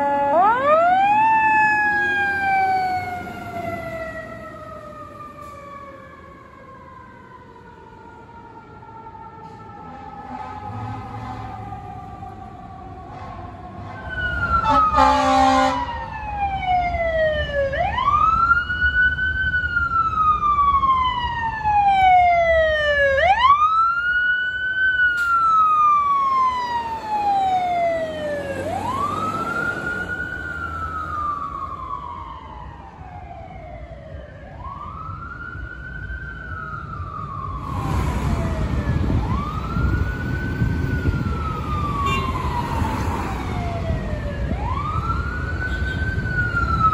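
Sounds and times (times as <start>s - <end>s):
engine and traffic rumble: 0.0s - 46.9s
fire engine siren wailing: 0.0s - 46.9s
short horn blast: 14.6s - 15.8s.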